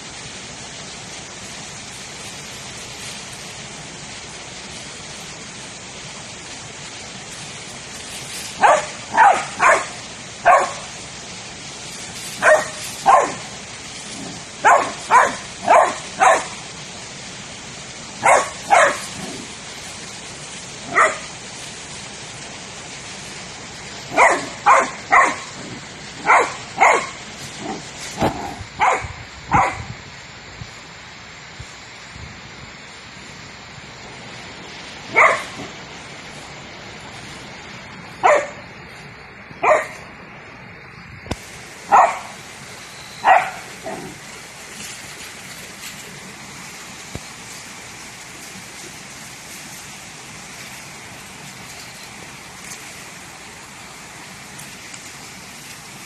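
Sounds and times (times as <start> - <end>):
steady hiss: 0.0 - 56.0
dog barking: 8.6 - 10.9, 12.4 - 13.5, 14.6 - 16.6, 18.2 - 19.4, 20.9 - 21.3, 24.1 - 25.5, 26.2 - 29.8, 35.1 - 35.7, 38.2 - 38.6, 39.6 - 40.0, 41.9 - 42.4, 43.2 - 44.2.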